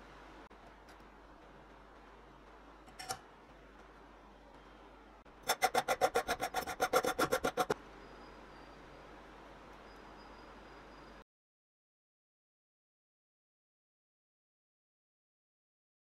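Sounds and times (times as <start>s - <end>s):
file rasping on metal tube: 5.4s - 7.8s.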